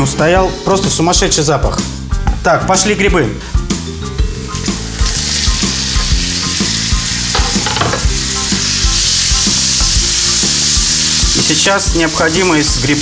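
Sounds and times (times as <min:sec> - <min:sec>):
mushrooms sizzling in a frying pan: 0:04.3 - 0:13.0.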